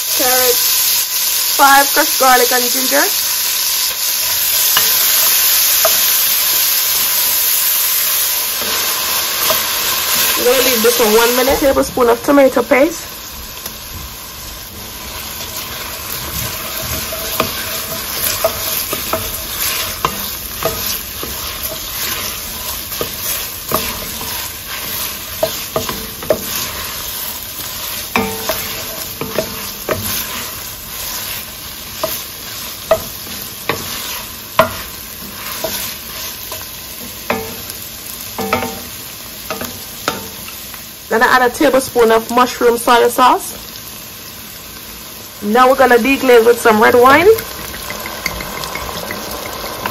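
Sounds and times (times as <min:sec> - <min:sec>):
vegetables sizzling in oil: 0:00.0 - 0:49.9
wooden spoon scraping a pot: 0:15.0 - 0:36.7.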